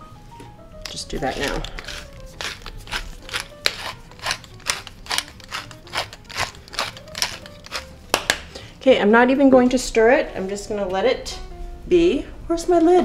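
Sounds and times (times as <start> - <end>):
pepper mill grinding peppercorns: 0.8 - 8.4.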